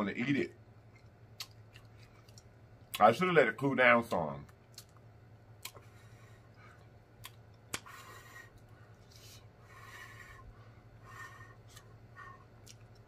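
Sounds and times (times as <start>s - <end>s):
person chewing food: 0.8s - 3.0s, 4.6s - 10.6s, 11.2s - 13.0s
soft breaths through pursed lips: 7.7s - 12.8s.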